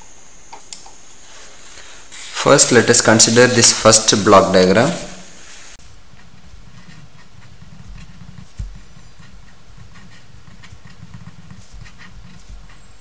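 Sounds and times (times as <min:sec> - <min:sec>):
steady low hum: 0:00.0 - 0:13.0
pen scratching on paper: 0:06.1 - 0:13.0.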